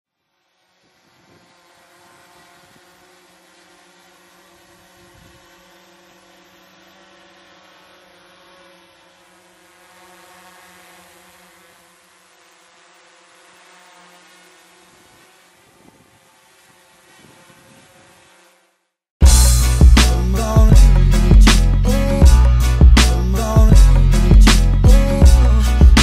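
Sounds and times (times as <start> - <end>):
drone propellers buzzing: 0.3 - 26.0
low thumps: 19.2 - 26.0.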